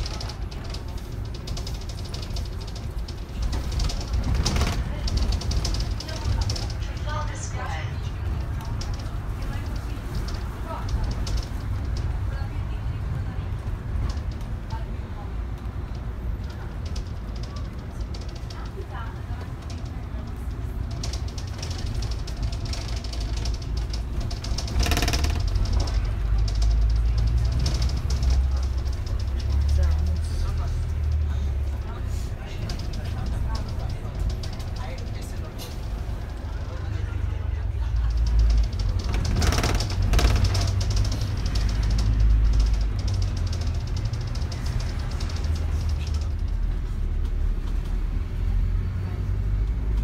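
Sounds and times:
bus engine rumbling: 0.0s - 50.0s
higher rattle: 20.8s - 31.1s, 38.0s - 46.6s.

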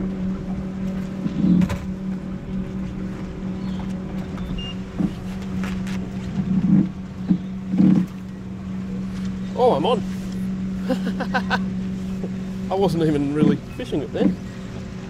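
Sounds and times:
boat motor hum: 0.0s - 15.0s
short knocks and clicks: 3.8s - 8.3s.

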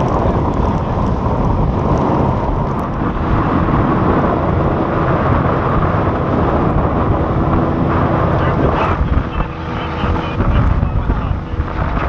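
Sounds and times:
outboard motor drone: 0.0s - 12.0s
wind rushing over microphone: 0.0s - 12.0s.

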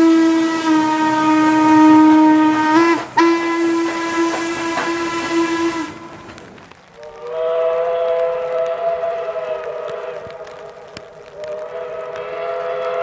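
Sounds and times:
steam whistle chord: 0.0s - 6.4s
steam whistle long blast: 0.0s - 6.4s, 7.0s - 10.8s, 11.4s - 13.0s.

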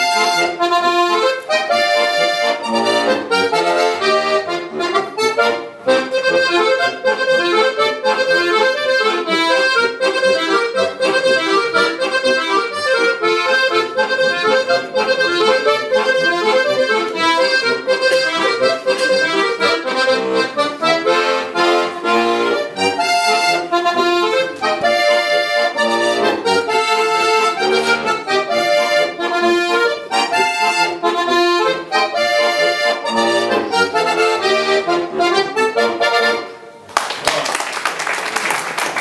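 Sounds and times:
button accordion folk tune: 0.0s - 36.9s
applause: 36.9s - 39.0s.

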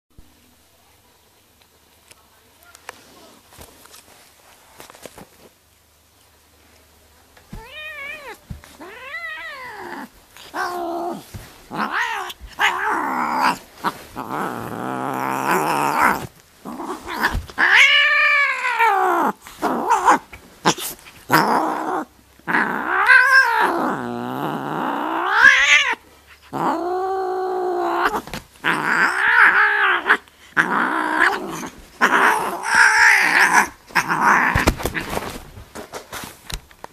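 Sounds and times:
cat yowling and growling: 7.5s - 35.0s.

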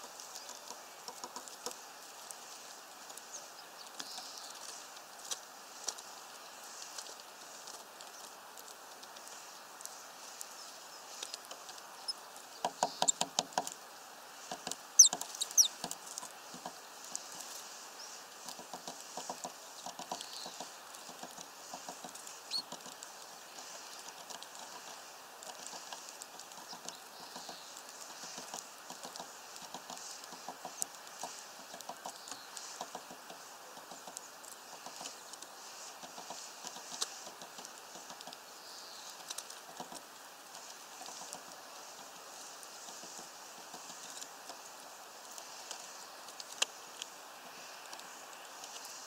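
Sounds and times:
bird pecking light taps: 0.2s - 1.8s, 18.4s - 38.4s.

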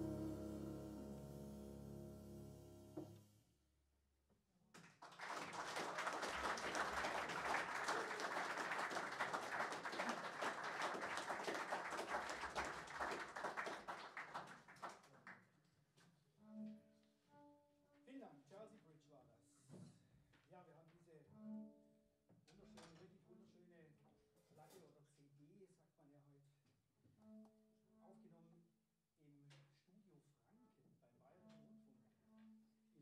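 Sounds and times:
audience applause: 5.0s - 15.1s.

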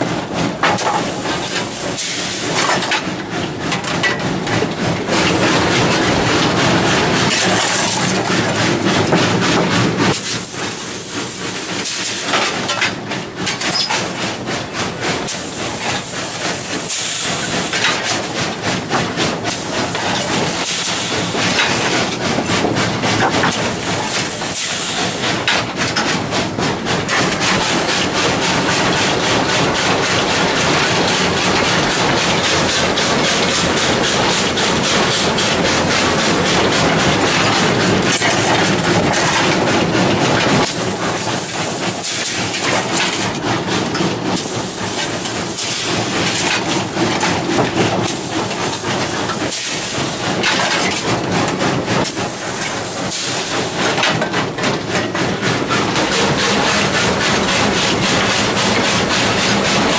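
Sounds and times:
steam locomotive running: 0.0s - 59.9s
steam hissing: 0.8s - 2.9s, 10.1s - 12.7s, 15.2s - 18.0s, 19.5s - 21.9s, 23.5s - 25.6s, 27.0s - 43.0s, 44.4s - 46.9s, 48.0s - 50.5s, 52.0s - 54.1s, 55.6s - 59.9s.

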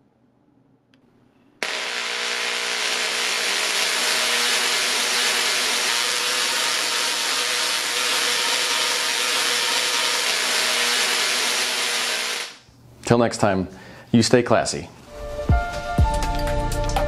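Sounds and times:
tesla coil sparks buzzing: 1.6s - 12.7s.

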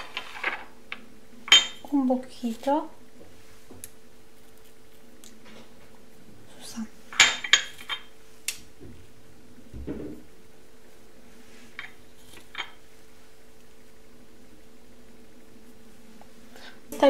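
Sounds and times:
faint steady hum: 0.0s - 17.0s
dishes clinking and knocking: 1.5s - 1.8s.

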